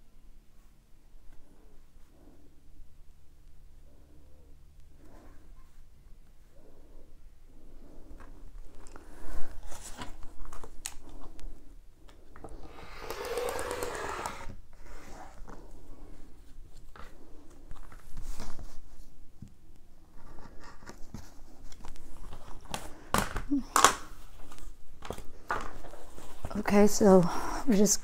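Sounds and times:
rotary cutter slicing fabric: 0:12.8 - 0:14.5.

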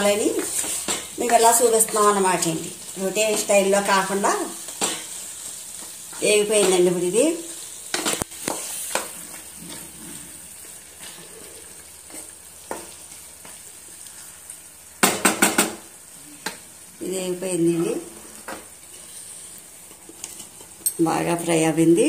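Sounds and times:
spatula stirring: 0:00.0 - 0:06.9, 0:07.8 - 0:14.4
food sizzling in a pan: 0:00.0 - 0:22.0
sharp knocks against pan: 0:15.0 - 0:15.8.

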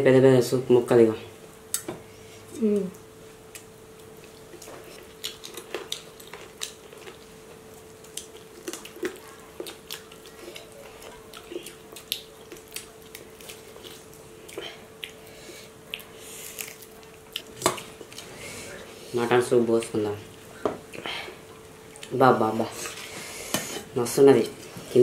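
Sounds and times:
faint steady hum: 0:00.0 - 0:25.0
chewing and lip-smacking: 0:03.5 - 0:18.4.

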